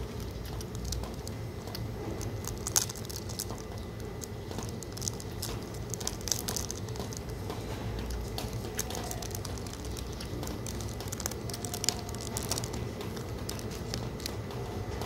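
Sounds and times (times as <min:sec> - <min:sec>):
low background rumble: 0:00.0 - 0:15.0
plastic wrapping crinkling: 0:00.0 - 0:15.0.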